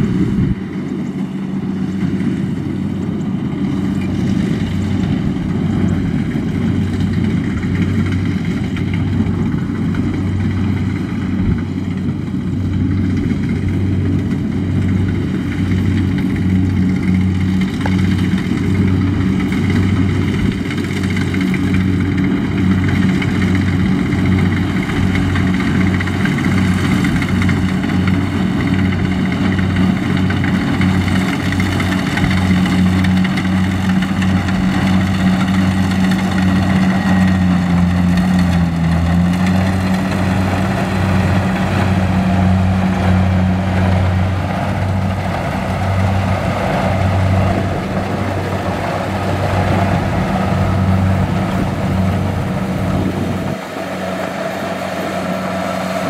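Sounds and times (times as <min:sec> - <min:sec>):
combine harvester engine droning: 0:00.0 - 0:56.0.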